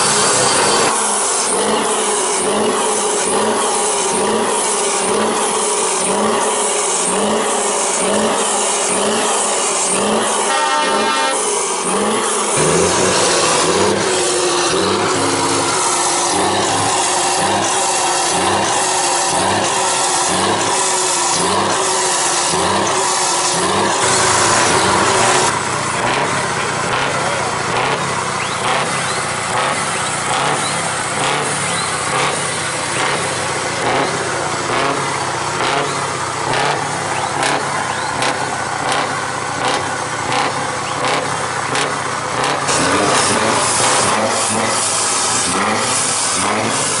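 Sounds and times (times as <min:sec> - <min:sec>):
truck diesel engine revving: 0:00.0 - 0:47.0
truck engine rough rasping idle: 0:00.0 - 0:47.0.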